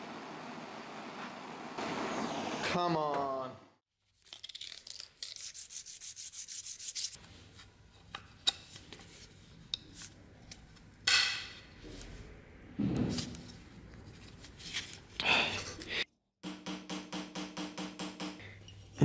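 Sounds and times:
metal rubbed on sandpaper: 5.2 - 7.2.

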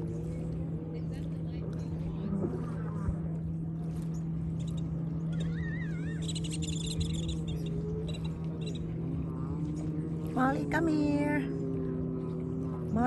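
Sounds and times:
boat engine humming: 0.0 - 13.0
bird warbling whistle: 4.6 - 8.8
rapid high bird chirps: 5.3 - 7.7.

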